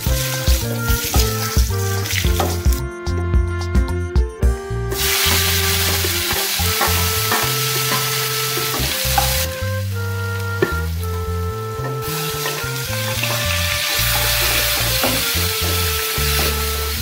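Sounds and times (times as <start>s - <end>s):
onions sizzling in hot oil: 0.0s - 2.6s, 4.9s - 9.6s, 12.0s - 17.0s
background music: 0.0s - 17.0s.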